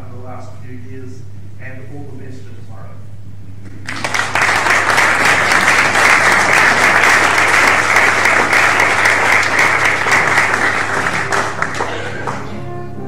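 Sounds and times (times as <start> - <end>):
audience applause: 3.8 - 12.6.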